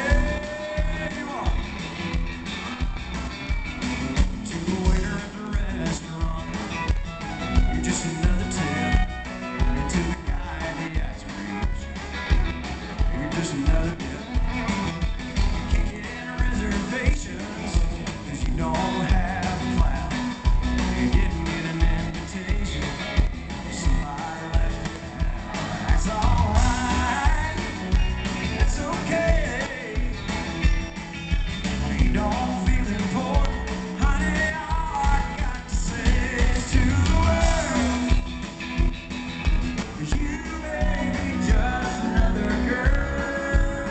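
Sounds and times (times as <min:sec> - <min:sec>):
man singing lead vocal: 0:00.0 - 0:03.0, 0:04.0 - 0:31.0, 0:31.6 - 0:39.0, 0:39.8 - 0:43.9
live country rock band: 0:00.0 - 0:43.9.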